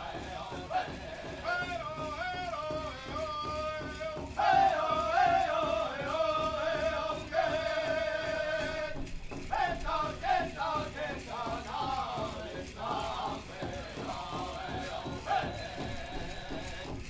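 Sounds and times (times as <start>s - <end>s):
singers chanting in high voices: 0.0s - 17.0s.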